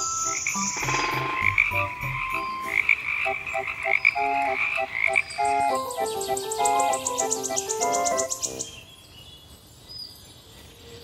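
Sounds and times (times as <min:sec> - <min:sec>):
frog croaking: 0:00.3 - 0:05.8.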